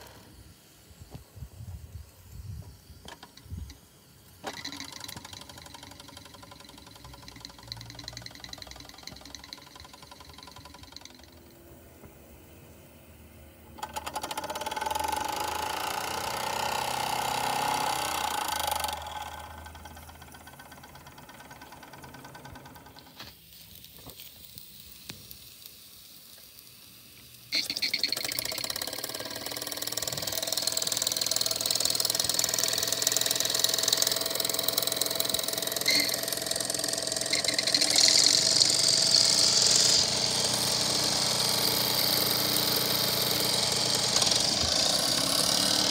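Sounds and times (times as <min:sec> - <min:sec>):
steam engine chuffing: 0:13.8 - 0:23.8, 0:27.5 - 0:45.9.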